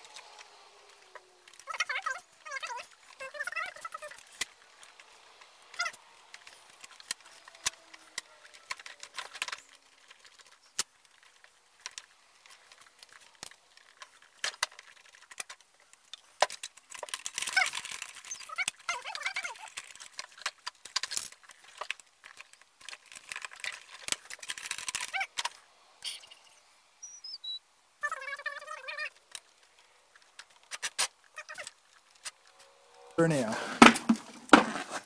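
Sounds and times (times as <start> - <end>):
plastic parts clicking and knocking: 0.0 - 25.7, 28.3 - 32.6, 33.8 - 35.0
squeaky scraping: 17.0 - 20.4.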